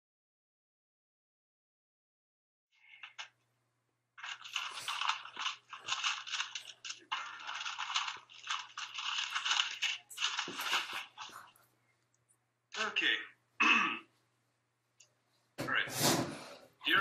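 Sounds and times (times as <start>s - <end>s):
paper rustling and crackling: 3.0s - 3.4s, 4.2s - 11.7s
envelope tearing: 4.2s - 11.5s.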